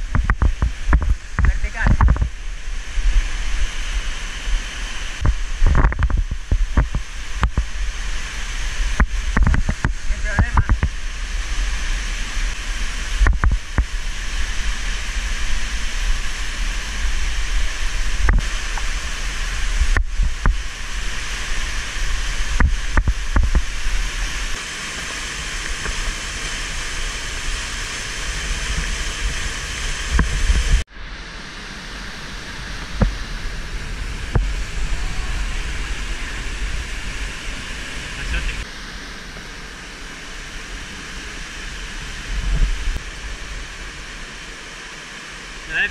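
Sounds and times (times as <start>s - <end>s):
waterfall rushing: 0.0s - 45.9s
low rumble: 26.8s - 44.6s.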